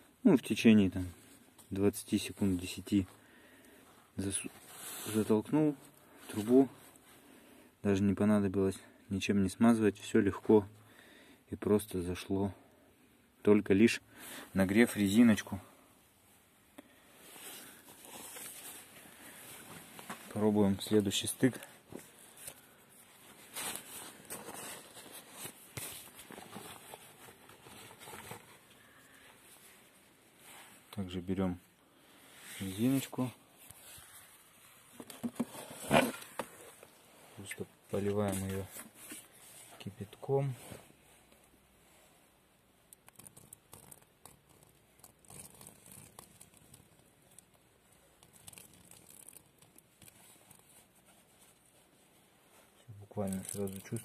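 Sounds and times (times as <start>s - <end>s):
boiling water crackling on pipe: 43.0s - 51.0s.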